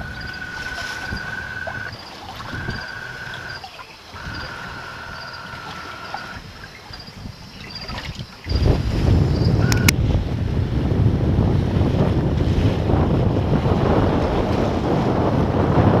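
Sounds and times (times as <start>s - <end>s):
steady high whine: 0.0s - 7.1s
wind and sea rushing: 0.0s - 16.0s.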